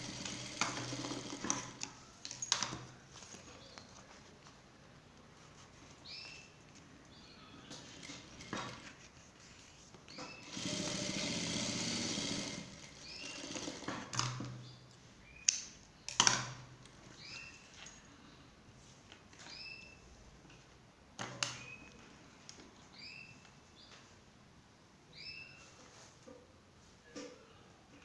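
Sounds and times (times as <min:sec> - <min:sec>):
sewing machine stitching: 0:00.0 - 0:01.9, 0:10.2 - 0:14.3.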